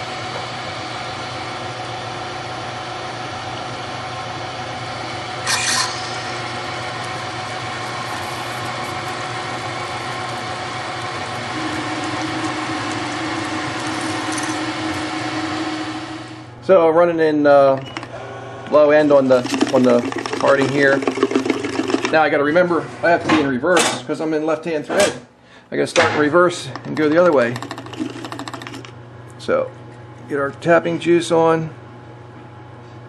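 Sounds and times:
lathe spindle running: 5.1s - 16.5s, 18.0s - 22.3s, 26.8s - 28.9s.

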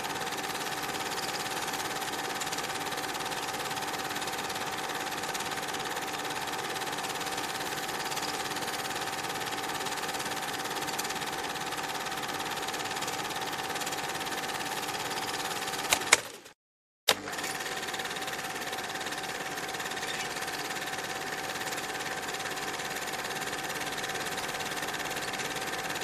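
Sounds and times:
steady mechanical whirr: 0.0s - 13.6s
sharp click: 15.8s - 16.4s.

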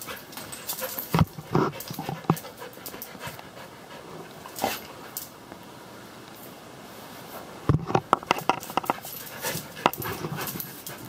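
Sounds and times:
dog panting: 0.0s - 5.2s, 8.9s - 11.0s.

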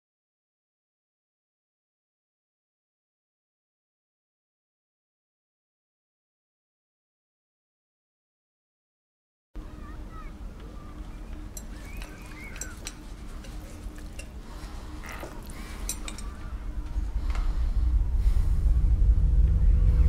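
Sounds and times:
low rumbling drone: 10.4s - 20.0s
cutlery clinking on plates: 11.5s - 14.4s.

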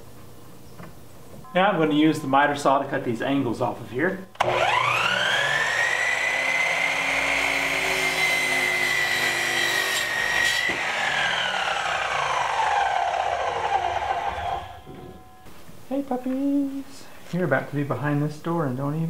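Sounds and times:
saw blade cutting wood: 4.4s - 14.9s
miter saw whining: 4.4s - 15.2s.

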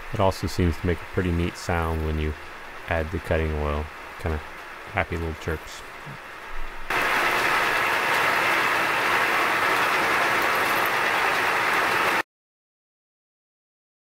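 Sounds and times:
milling machine cutting metal: 6.9s - 12.2s.

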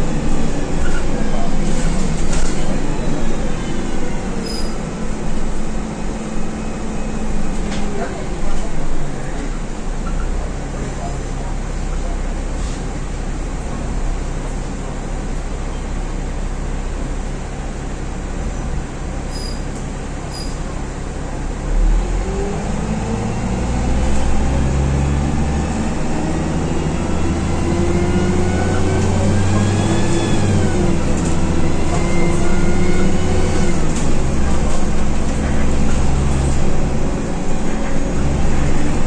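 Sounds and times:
bus engine accelerating: 0.0s - 39.0s.

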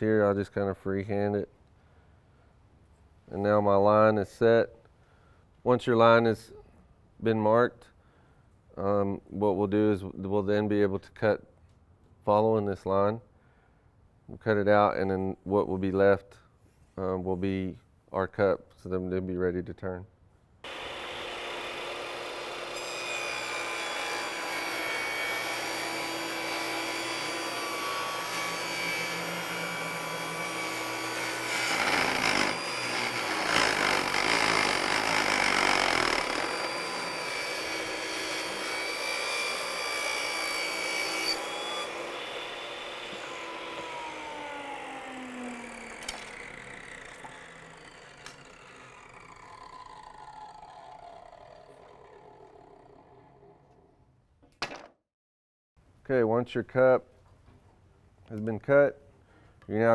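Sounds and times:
table saw cutting wood: 20.6s - 53.9s
saw blade spinning down: 20.7s - 54.2s.

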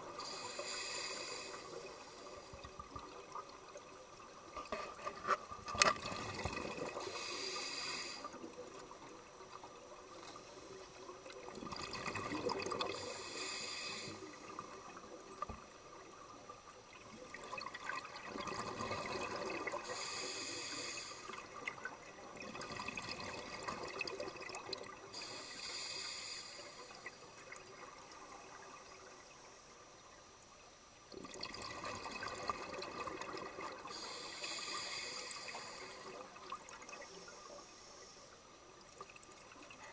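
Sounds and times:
regulator inhale hiss: 0.1s - 2.7s, 6.9s - 8.5s, 12.8s - 14.7s, 19.7s - 21.5s, 25.1s - 27.3s, 33.8s - 38.6s.

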